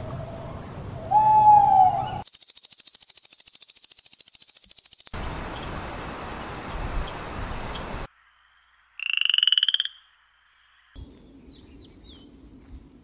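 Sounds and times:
owl hooting: 1.1 - 5.1
high-pitched insect trill: 2.2 - 8.1
steady hiss: 2.3 - 8.4.

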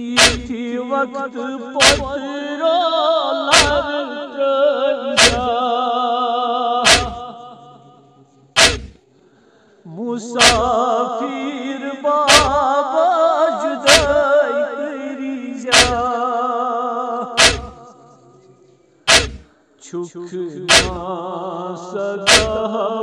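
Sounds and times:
rhythmic chest-beating: 0.0 - 0.5, 1.8 - 2.2, 3.5 - 3.9, 5.2 - 5.5, 6.8 - 7.3, 8.6 - 9.0, 10.4 - 10.8, 12.3 - 12.6, 13.9 - 14.2, 15.7 - 16.1, 17.4 - 17.8, 19.1 - 19.5, 20.7 - 21.1, 22.3 - 22.6
man chanting a lament: 0.0 - 8.9, 9.8 - 23.0.

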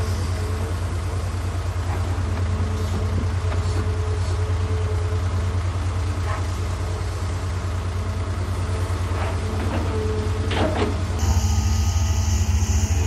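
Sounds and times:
diesel engine running: 0.0 - 13.0
steady hum: 11.2 - 13.0.

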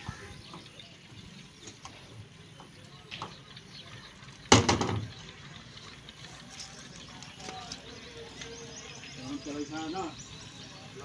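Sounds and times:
light knocks on engine parts: 2.6 - 3.4, 4.5 - 5.2.

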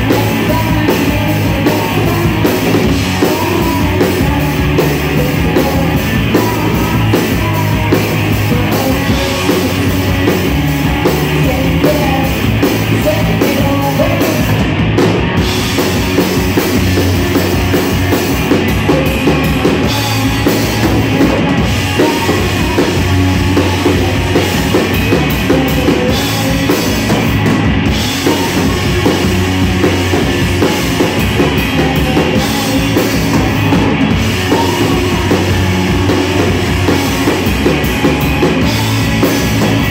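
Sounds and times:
drum kit: 0.0 - 39.9
electric guitars: 0.0 - 39.9.

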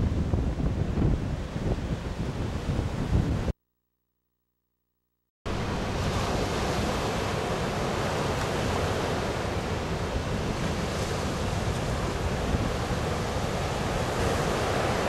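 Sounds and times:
wind on microphone: 0.0 - 3.5, 5.6 - 15.0
ocean waves breaking: 5.5 - 15.0.

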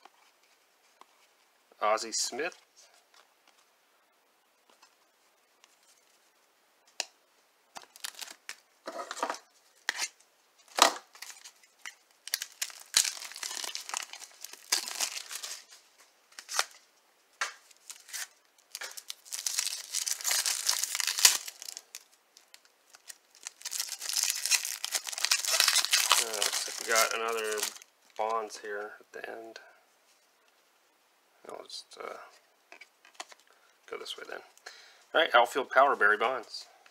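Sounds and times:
plastic shrink-wrap crinkling: 7.8 - 8.6, 11.0 - 16.8, 17.6 - 28.3.

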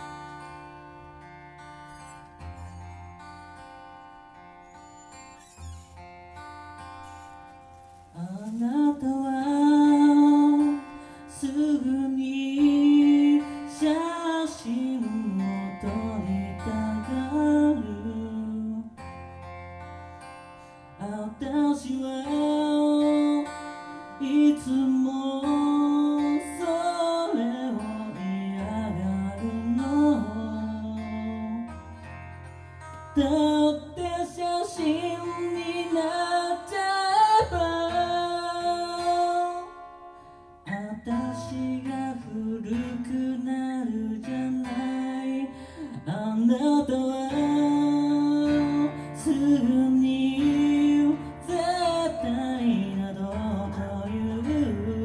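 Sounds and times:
acoustic guitar: 0.0 - 55.0
person singing: 8.2 - 19.1, 20.9 - 32.1, 33.1 - 55.0.

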